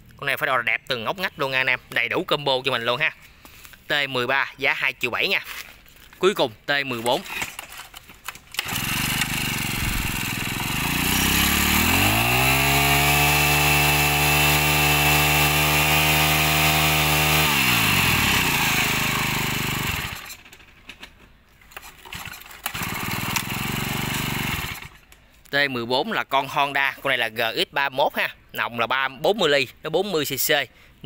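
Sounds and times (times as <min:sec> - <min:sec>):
brush cutter engine revving: 0:07.0 - 0:20.6, 0:21.8 - 0:25.1.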